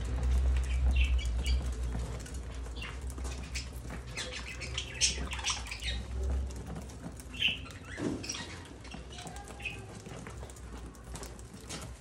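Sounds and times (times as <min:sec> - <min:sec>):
budgerigars chirping: 0:00.3 - 0:06.3, 0:07.3 - 0:09.8.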